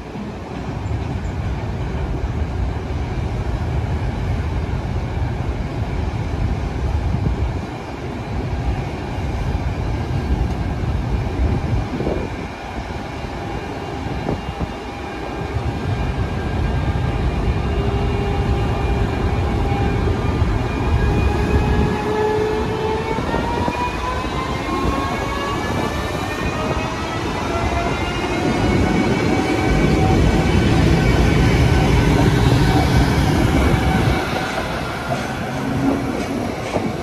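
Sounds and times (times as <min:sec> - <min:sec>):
freight train low rumble: 0:00.0 - 0:37.0.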